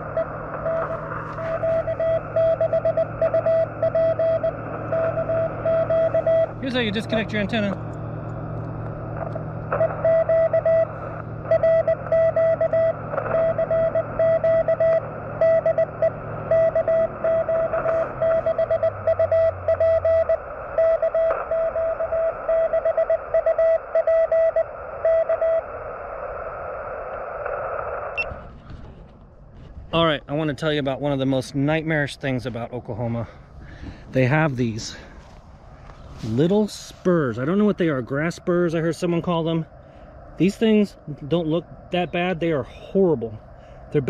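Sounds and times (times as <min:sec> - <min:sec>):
morse code tone: 0:00.0 - 0:07.7, 0:09.7 - 0:25.6
receiver hiss: 0:00.0 - 0:44.0.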